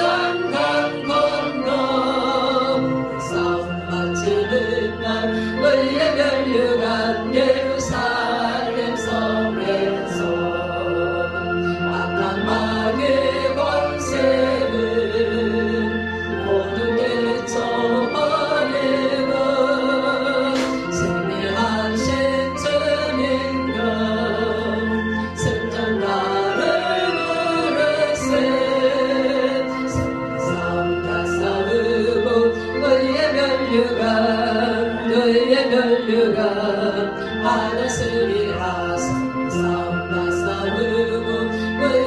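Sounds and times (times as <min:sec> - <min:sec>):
instrumental accompaniment: 0:00.0 - 0:42.0
woman singing a hymn: 0:00.0 - 0:42.0.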